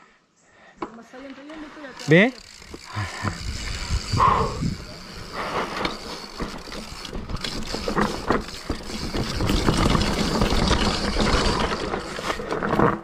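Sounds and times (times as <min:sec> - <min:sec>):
bike clacks and rattles: 0:01.4 - 0:04.1, 0:04.7 - 0:13.0
tyre and wind rush: 0:03.0 - 0:06.3.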